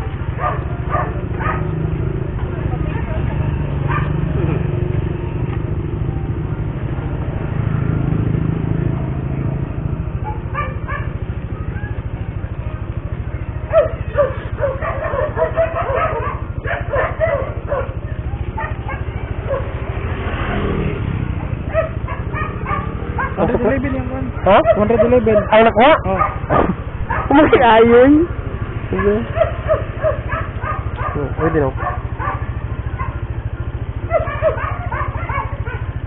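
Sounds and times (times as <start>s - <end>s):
motorcycle engine idling: 0.0s - 36.0s
dog barking: 0.3s - 1.8s, 3.8s - 4.2s, 10.2s - 12.0s, 13.6s - 20.8s, 21.6s - 27.6s, 28.9s - 36.0s.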